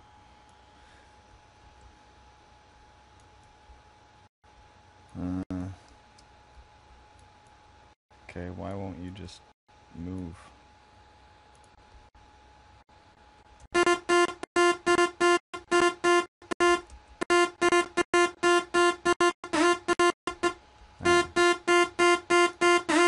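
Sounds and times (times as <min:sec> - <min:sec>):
buzzy synthesizer riff: 0:13.8 - 0:23.0.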